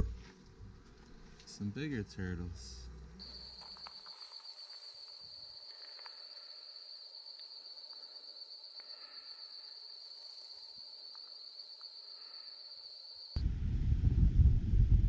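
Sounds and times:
insect trilling: 3.2 - 13.4.

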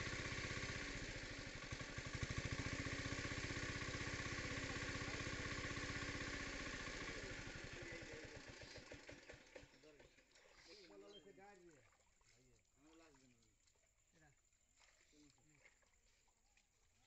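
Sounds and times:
small engine running: 0.0 - 11.1.

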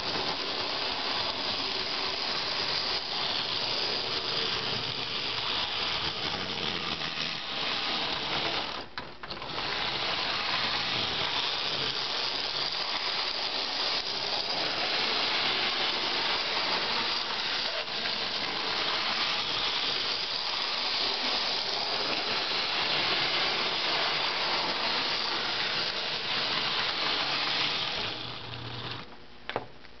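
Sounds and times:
model train motor whirring: 0.0 - 29.1.

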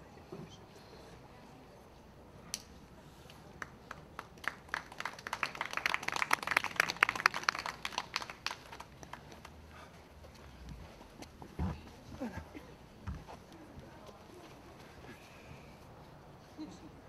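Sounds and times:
audience applause: 3.6 - 9.3.

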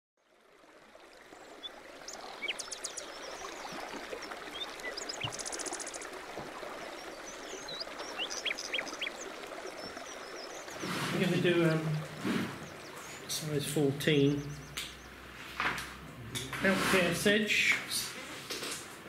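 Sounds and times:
running water: 0.2 - 19.0
small birds chirping: 1.4 - 15.2
bird trilling: 2.1 - 6.2, 7.2 - 11.0, 14.1 - 15.2.

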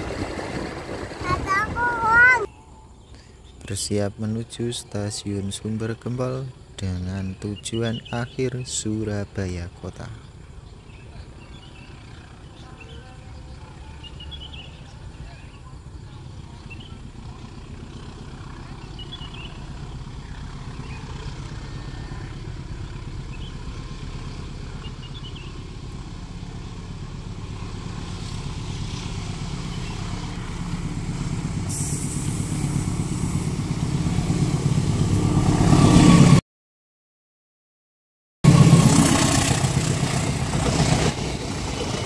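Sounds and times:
diesel locomotive engine hum: 0.0 - 36.4, 38.5 - 42.0
wheels hissing on rail: 16.3 - 36.4, 38.5 - 42.0.

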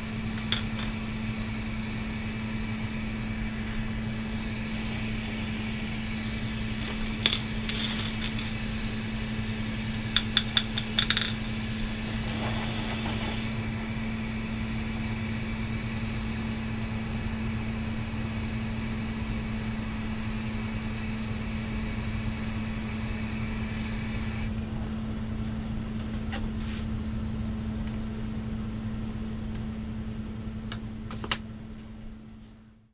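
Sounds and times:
steady low hum: 0.0 - 32.9
bench torch hissing: 3.5 - 7.7, 11.4 - 14.0.

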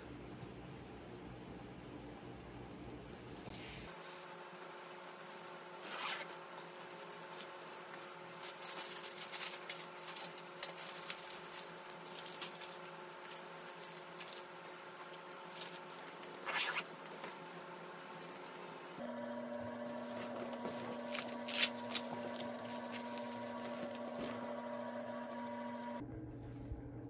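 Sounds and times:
faint steady hum: 0.0 - 27.0
bag rustling and scratching: 5.8 - 6.4, 7.3 - 17.6, 19.9 - 24.5.

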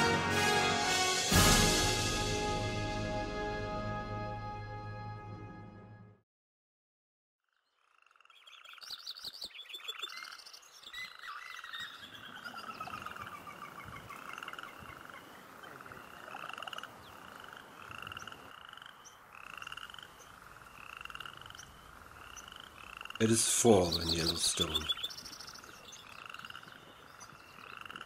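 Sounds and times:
frogs calling with pulsed trills: 7.4 - 28.0.

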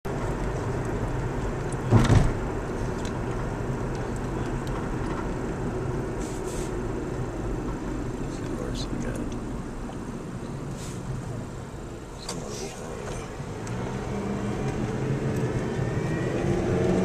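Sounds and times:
car road noise: 0.0 - 17.0
loud thump: 1.9 - 2.4.

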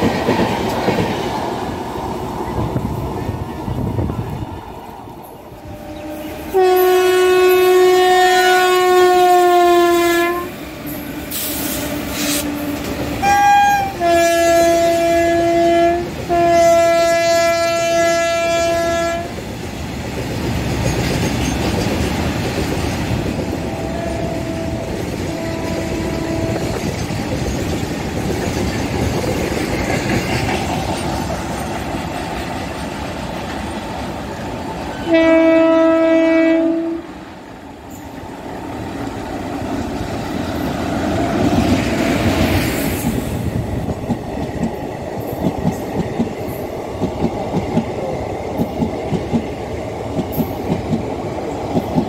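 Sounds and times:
freight train rumbling past: 0.0 - 52.0
train horn blasts: 5.6 - 10.6, 11.3 - 19.4, 23.4 - 26.8, 34.9 - 37.1.

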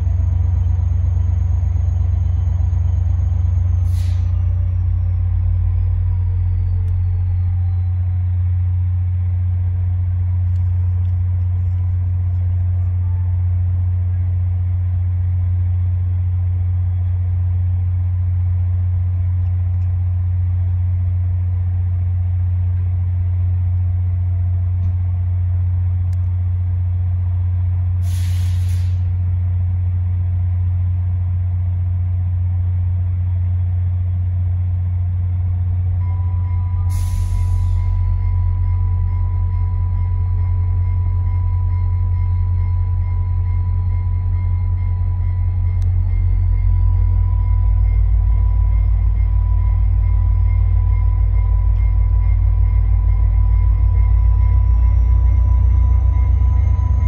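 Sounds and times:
diesel locomotive idling: 0.0 - 57.0
air hiss: 3.8 - 4.4, 28.0 - 29.1, 36.9 - 37.9.

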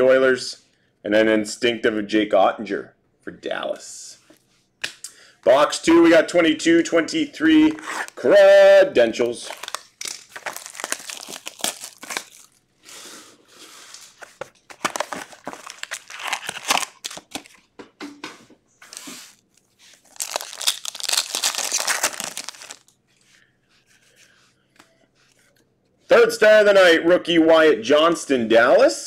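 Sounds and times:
foil packs crinkling and tearing: 9.2 - 12.6, 14.0 - 17.6, 18.9 - 23.0.

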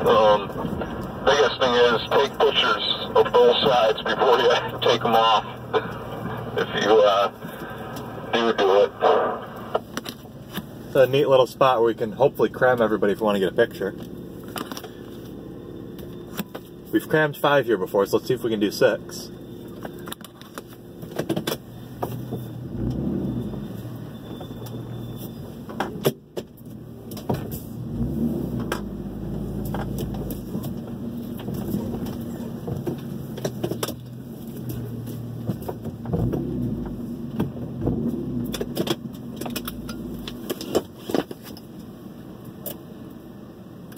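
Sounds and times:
truck engine rumble: 0.0 - 43.9
knocks and rattles in cab: 21.0 - 22.4, 29.7 - 34.7, 35.4 - 41.6.

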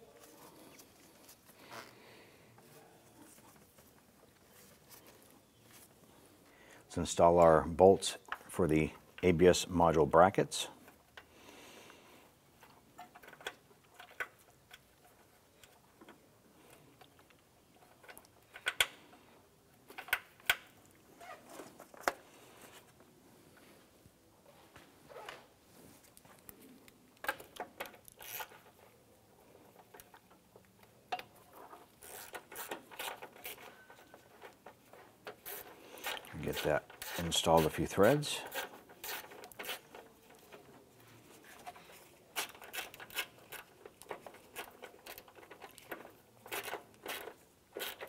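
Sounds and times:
metal clicks of bolts and tools: 12.6 - 19.2.

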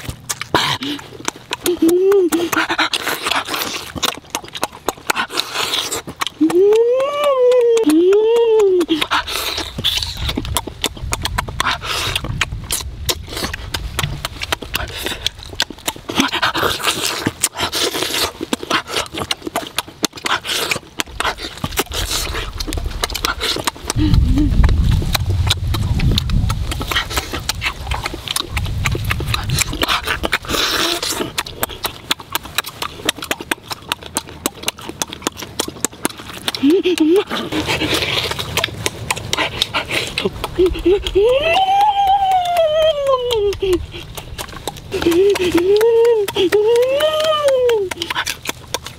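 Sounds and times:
wet chewing and lip-smacking: 0.0 - 48.9
low murmuring: 39.2 - 48.4.

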